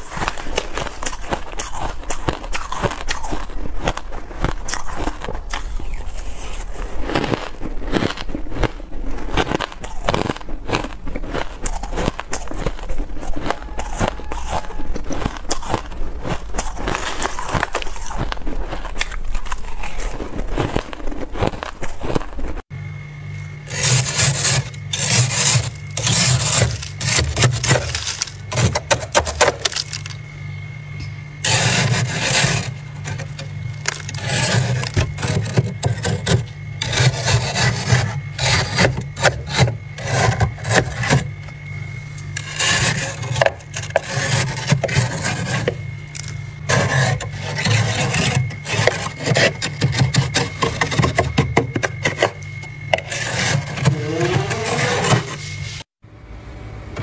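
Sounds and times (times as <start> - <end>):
low steady hum: 0.0 - 57.0
scraper rasping on frost: 23.7 - 29.3, 31.4 - 41.4, 42.4 - 45.8, 46.7 - 51.4, 52.9 - 55.9.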